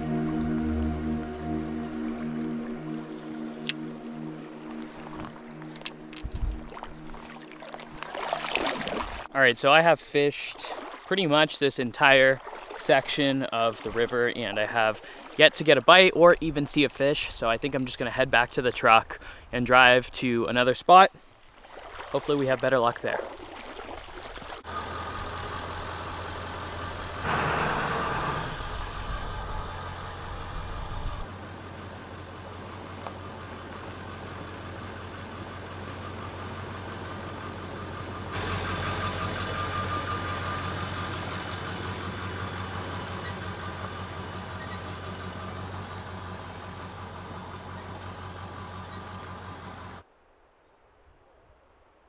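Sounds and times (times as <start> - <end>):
diesel truck engine droning: 0.0 - 8.1, 24.6 - 50.0.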